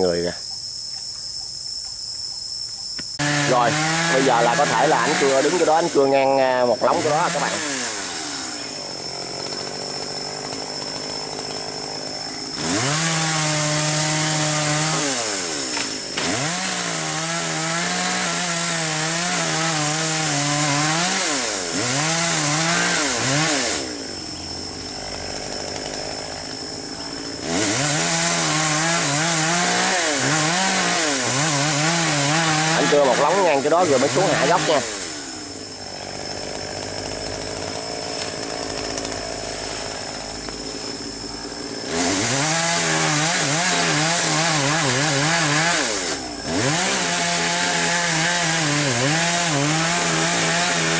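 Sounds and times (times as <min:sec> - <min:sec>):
chainsaw cutting wood: 0:03.1 - 0:50.9
chainsaw idling: 0:03.2 - 0:50.9.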